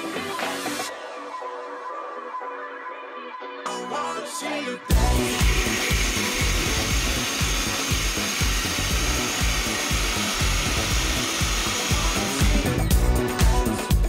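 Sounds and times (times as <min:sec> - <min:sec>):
background music with a beat: 0:00.0 - 0:14.0
dog grooming dryer blowing: 0:05.2 - 0:12.9.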